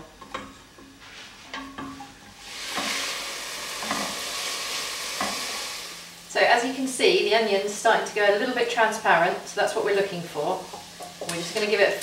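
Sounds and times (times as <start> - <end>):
wooden spoon scraping a pot: 0.3 - 5.8
vegetables sizzling in oil: 1.4 - 12.0.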